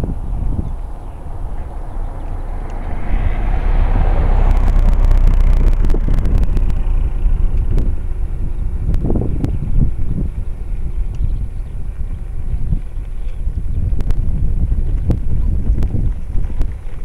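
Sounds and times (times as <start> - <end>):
car passing slowly: 0.0 - 17.0
wind rumble on microphone: 0.0 - 17.0.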